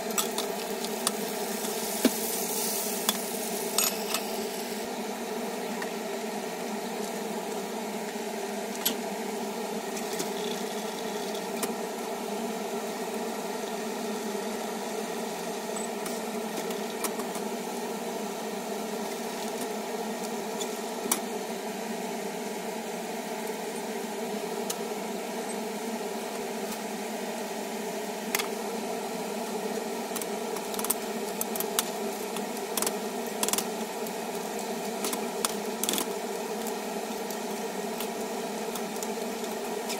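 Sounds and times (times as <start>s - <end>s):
steady mechanical hum: 0.0s - 39.9s
clams sizzling in oil: 0.1s - 4.9s.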